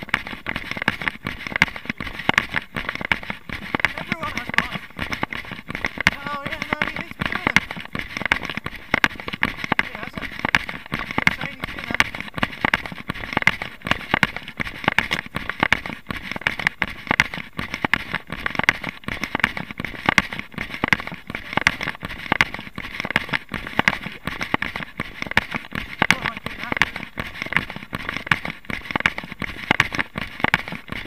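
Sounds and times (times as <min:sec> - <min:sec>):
running footsteps on dirt: 0:00.0 - 0:31.0.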